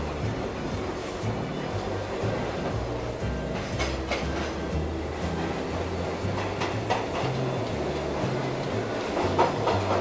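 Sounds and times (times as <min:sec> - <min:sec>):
toy train rolling on wooden track: 0:05.3 - 0:10.0.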